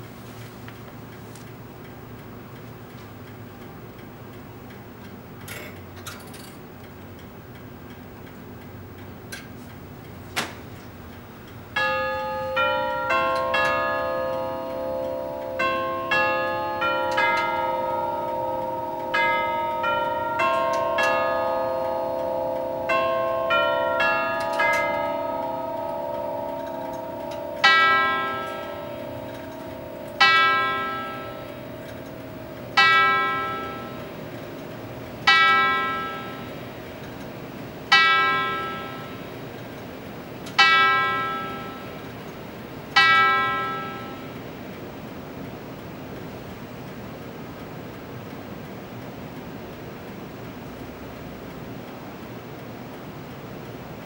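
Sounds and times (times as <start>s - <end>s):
clock hour strikes: 1.1s - 54.0s
clock ticking: 11.1s - 42.4s
chime tubes ringing a tune: 11.8s - 37.2s.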